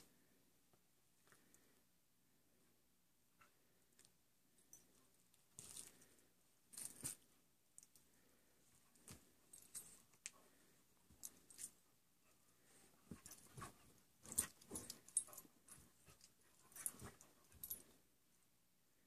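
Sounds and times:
collar tags jingling: 0:13.0 - 0:18.0.

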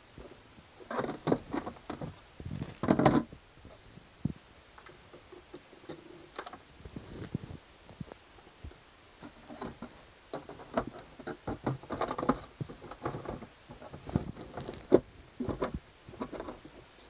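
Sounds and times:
plastic knocks and scrapes: 0:00.2 - 0:03.3, 0:09.2 - 0:16.9.

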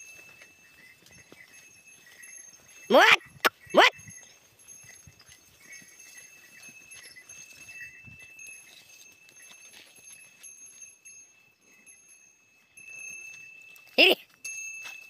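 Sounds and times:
faint hoof steps on dirt: 0:00.0 - 0:11.4.

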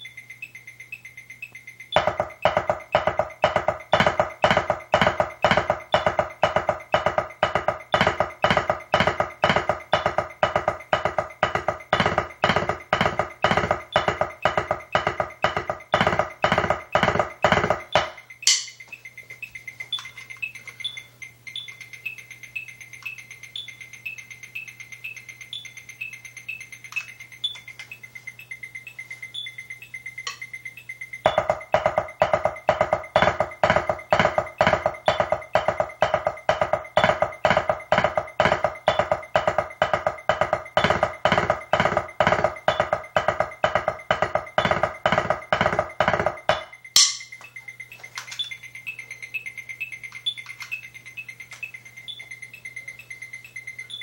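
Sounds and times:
faint high beep: 0:00.0 - 0:54.0
loud pulsing electronic tone: 0:00.0 - 0:54.0.

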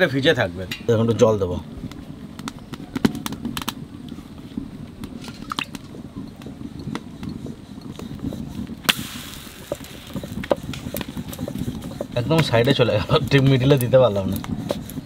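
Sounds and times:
fire crackling and popping: 0:00.1 - 0:15.0
dough hissing on hot iron: 0:07.4 - 0:15.0.

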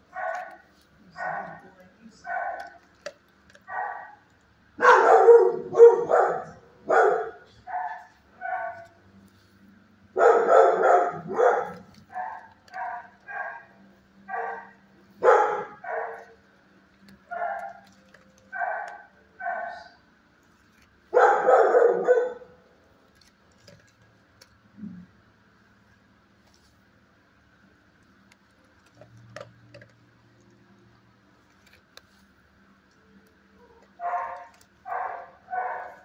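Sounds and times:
dog barking: 0:00.1 - 0:02.9, 0:03.6 - 0:09.0, 0:10.1 - 0:16.4, 0:17.2 - 0:20.0, 0:21.1 - 0:22.6, 0:33.6 - 0:36.0.

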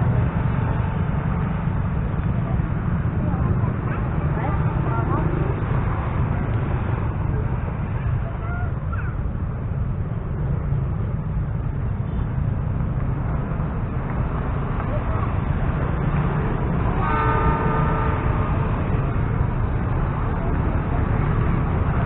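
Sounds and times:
low steady rumble: 0:00.0 - 0:22.0
train horn chord: 0:17.0 - 0:18.7.

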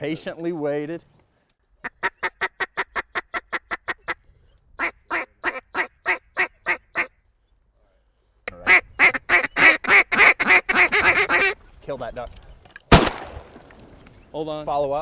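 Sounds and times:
duck call quacks: 0:01.8 - 0:04.2, 0:04.8 - 0:07.2, 0:08.5 - 0:11.6.

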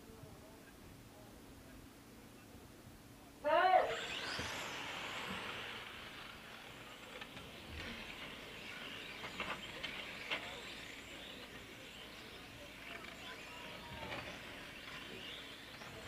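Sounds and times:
electric rc cars racing past: 0:03.5 - 0:16.0.

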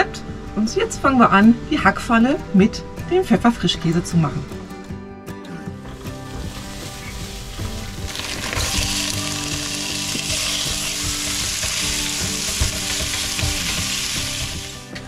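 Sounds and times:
meat and onion sizzling in pan: 0:05.9 - 0:15.0.

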